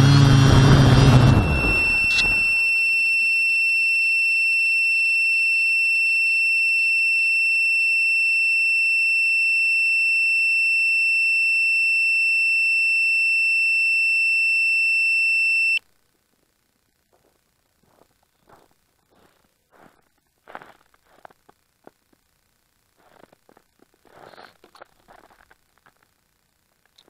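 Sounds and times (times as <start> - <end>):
high-pitched electronic tone: 0.0 - 5.0.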